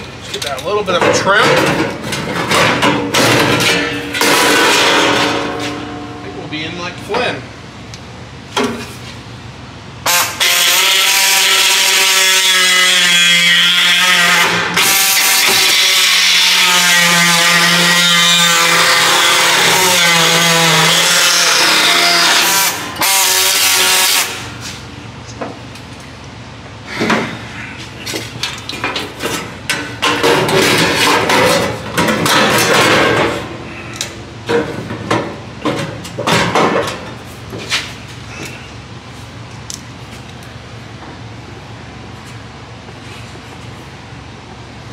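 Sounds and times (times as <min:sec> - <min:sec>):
power tool cutting sheet metal: 0:10.1 - 0:24.6.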